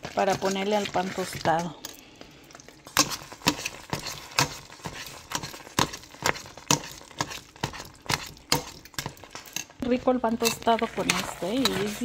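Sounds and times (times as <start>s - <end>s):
metal spoon scraping pot: 2.9s - 12.0s.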